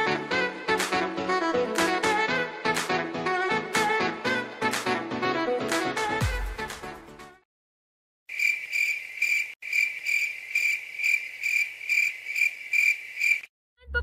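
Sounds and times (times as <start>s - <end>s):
cricket chirping: 8.3s - 13.5s.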